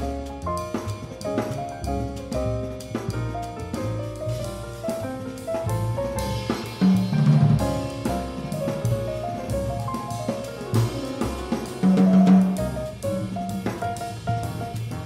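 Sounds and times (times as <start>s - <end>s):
drum kit keeping time: 0.0s - 15.0s
grand piano chords and runs: 0.0s - 15.0s
upright double bass: 0.0s - 15.0s.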